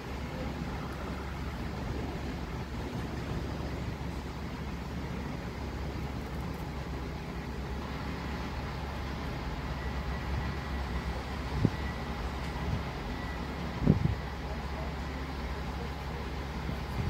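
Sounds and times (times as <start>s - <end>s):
low outdoor rumble: 0.0s - 17.0s
faint whistle-like tone: 11.6s - 12.1s.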